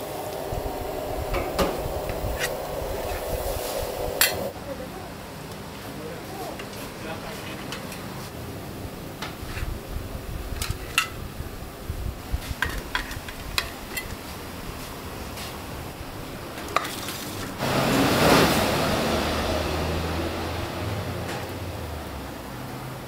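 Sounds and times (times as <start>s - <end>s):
steady rushing noise: 0.0s - 4.6s.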